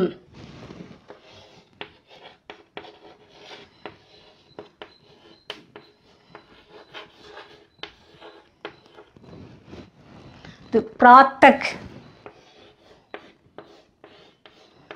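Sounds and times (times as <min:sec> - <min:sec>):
chalk scratching on chalkboard: 0:00.1 - 0:10.8, 0:11.7 - 0:14.9
chalk tapping on board: 0:01.1 - 0:09.2, 0:12.2 - 0:14.9.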